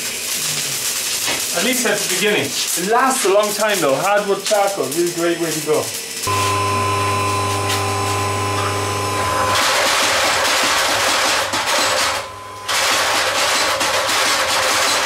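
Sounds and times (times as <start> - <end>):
steady electric hum: 0.0 - 14.7
power hammer beating on steel: 9.6 - 15.0.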